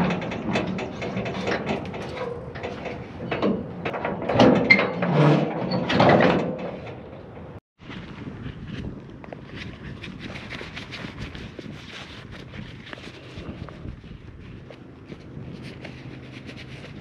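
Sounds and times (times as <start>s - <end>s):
gate clanking and rattling: 0.0s - 7.6s.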